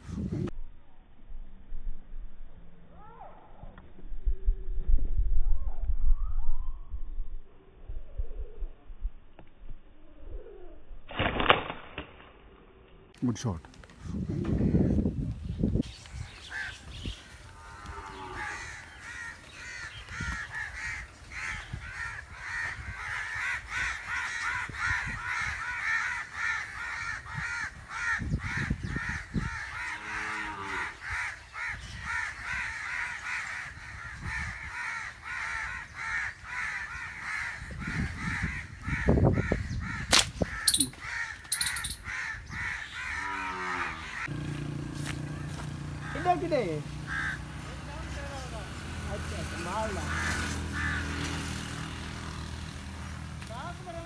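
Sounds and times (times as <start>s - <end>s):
flock of birds calling: 15.8s - 44.3s, 45.3s - 48.1s, 49.2s - 51.7s.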